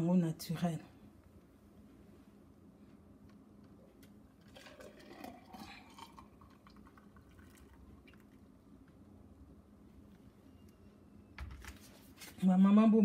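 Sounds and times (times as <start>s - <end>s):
juice pouring into plastic cup: 4.4s - 8.5s.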